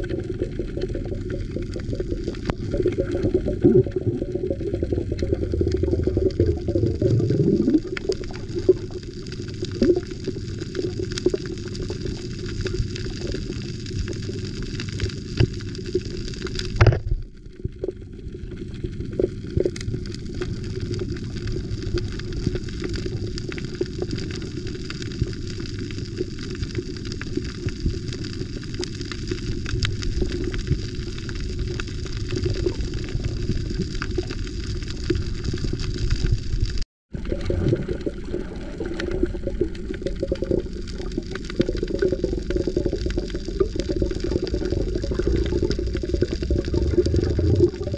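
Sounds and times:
small crackling clicks: 0:00.0 - 0:06.7, 0:07.5 - 0:38.1, 0:38.9 - 0:47.9
muffled underwater rumble: 0:00.0 - 0:47.9.

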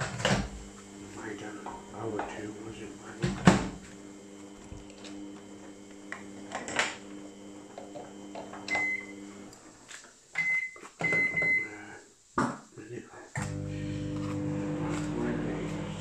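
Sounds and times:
kitchen appliance humming: 0:00.0 - 0:10.0, 0:13.4 - 0:16.0.

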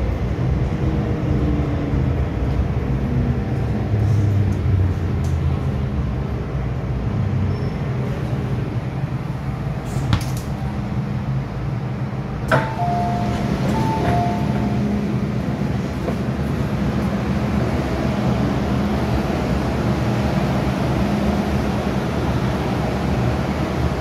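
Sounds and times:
train slowing and stopping: 0:00.0 - 0:24.0
train doors clunking open: 0:09.8 - 0:10.6, 0:12.4 - 0:17.3
two-note electronic chime: 0:12.6 - 0:14.9.

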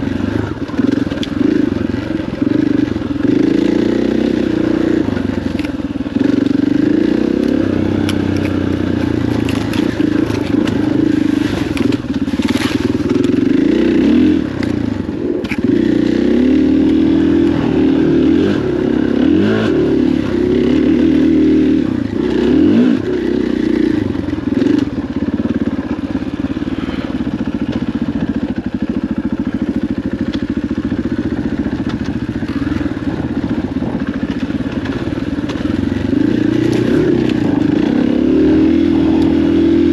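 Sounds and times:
dirt bike engine revving: 0:00.0 - 0:39.9
bike knocking and clattering: 0:05.2 - 0:13.8, 0:27.2 - 0:37.8.

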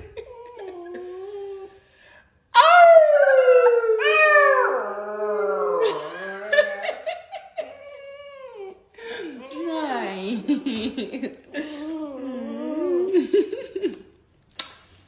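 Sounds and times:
puppy whining: 0:00.0 - 0:01.9, 0:07.6 - 0:09.6
puppy howling: 0:02.6 - 0:07.0.

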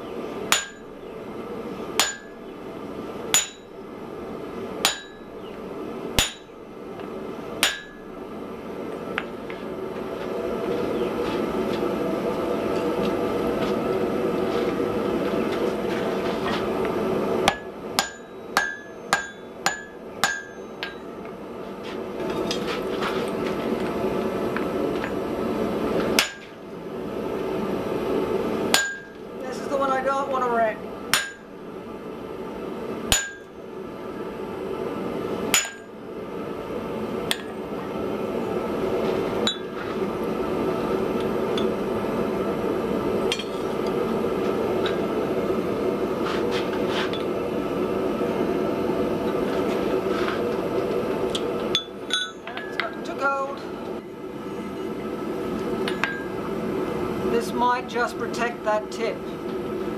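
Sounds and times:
hammer blows on hot iron: 0:02.0 - 0:02.4, 0:04.8 - 0:05.3, 0:06.2 - 0:06.6, 0:07.6 - 0:08.1.

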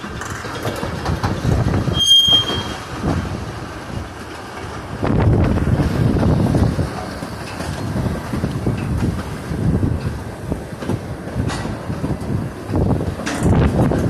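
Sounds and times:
train cars rolling on track: 0:00.0 - 0:14.0
wind buffeting microphone: 0:00.0 - 0:14.0.

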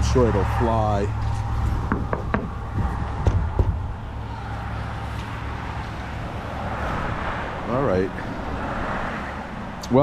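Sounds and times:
wind rumbling on microphone: 0:00.0 - 0:09.8
knocks: 0:01.8 - 0:03.9.

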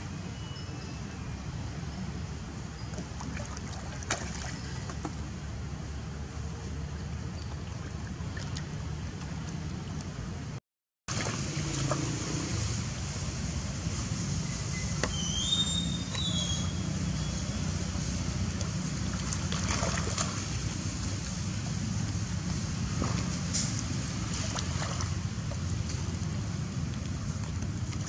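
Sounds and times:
water sloshing and splashing: 0:02.7 - 0:15.2, 0:16.0 - 0:28.0.

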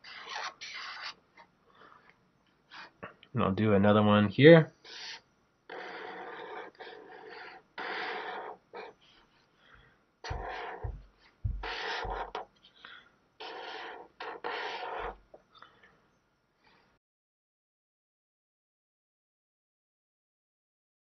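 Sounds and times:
marker scratching on paper: 0:00.0 - 0:01.2, 0:02.7 - 0:02.9, 0:04.8 - 0:09.2, 0:10.2 - 0:12.5, 0:13.4 - 0:15.2
low thumps: 0:10.3 - 0:11.7.

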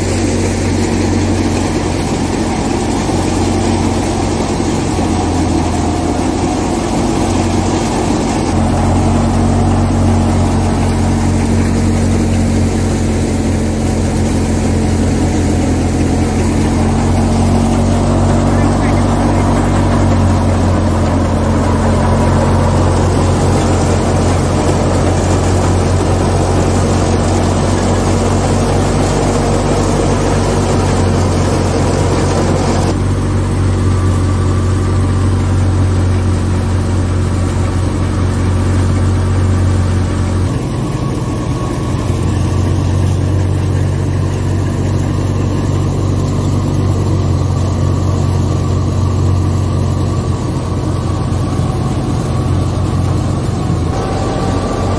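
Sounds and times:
heavy engine drone: 0:00.0 - 0:54.9
threshing drum whirring: 0:00.0 - 0:54.9.

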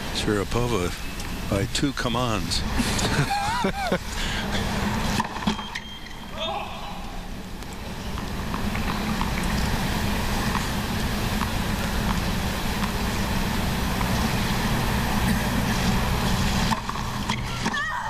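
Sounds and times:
sports broadcast: 0:00.0 - 0:02.8
static noise with low hum: 0:00.0 - 0:18.0.

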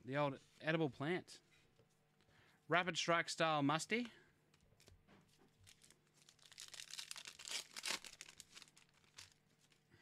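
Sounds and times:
foil wrapper crinkling: 0:05.6 - 0:09.9.

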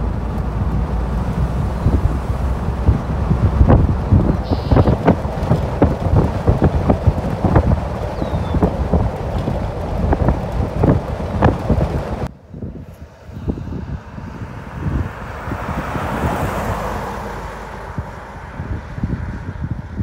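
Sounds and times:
wind gusting on the microphone: 0:00.0 - 0:20.0
car driving past: 0:13.1 - 0:19.5.

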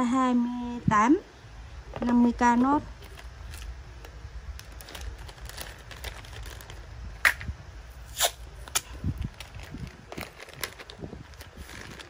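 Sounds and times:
cardboard box and plastic rustling: 0:01.9 - 0:07.5, 0:08.6 - 0:12.0.

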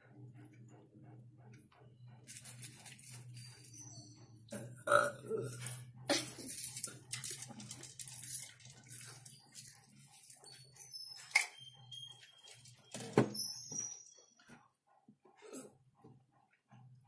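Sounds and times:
popcorn being chewed: 0:00.2 - 0:12.8.

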